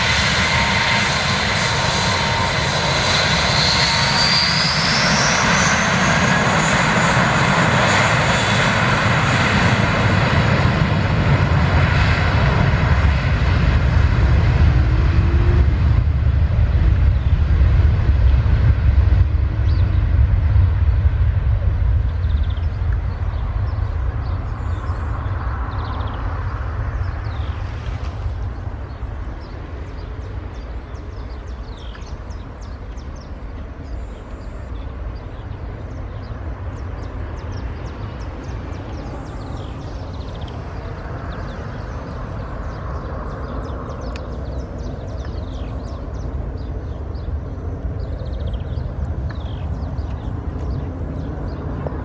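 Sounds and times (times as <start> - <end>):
jet engines at takeoff: 0.0 - 52.0.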